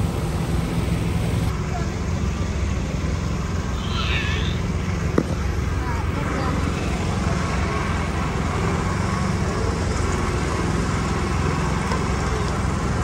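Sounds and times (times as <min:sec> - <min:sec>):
low engine rumble: 0:00.0 - 0:13.0.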